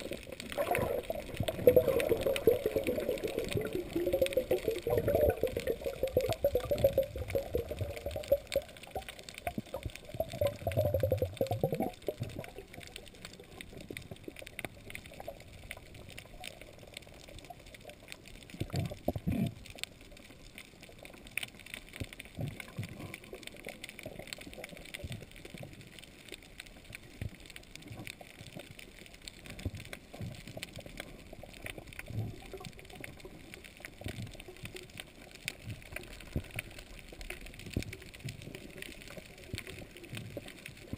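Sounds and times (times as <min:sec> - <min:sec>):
low bubbling bursts: 0:00.0 - 0:13.8
faint clicks: 0:00.0 - 0:40.9
water sloshing underwater: 0:00.0 - 0:40.9.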